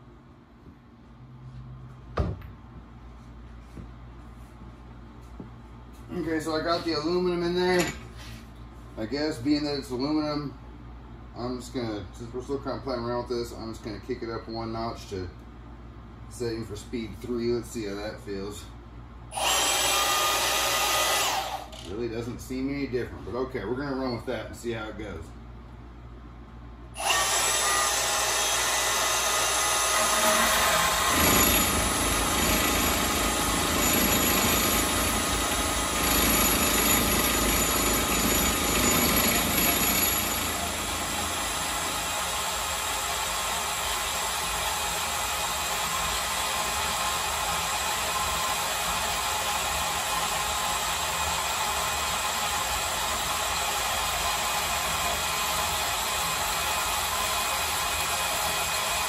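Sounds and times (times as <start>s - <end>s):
band saw cutting metal: 19.4s - 21.8s, 27.0s - 42.1s.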